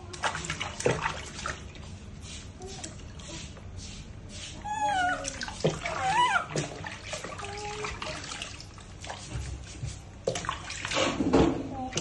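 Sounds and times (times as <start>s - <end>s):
water splashing in a tub: 0.0s - 12.0s
high-pitched monkey calls: 4.6s - 5.2s, 5.9s - 6.5s.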